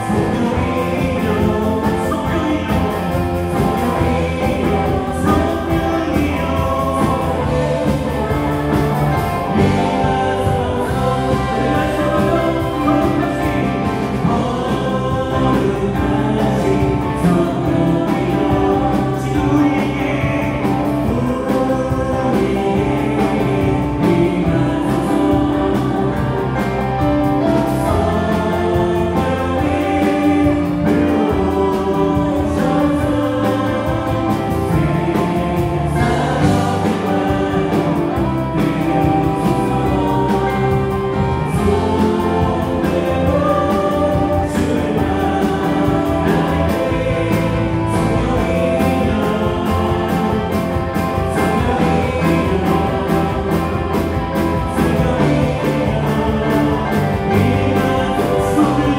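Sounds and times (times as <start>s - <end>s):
bass guitar: 0.0s - 58.9s
drum kit: 0.0s - 58.9s
electric guitar: 0.0s - 58.9s
keyboards: 0.0s - 58.9s
people singing together: 0.0s - 58.9s.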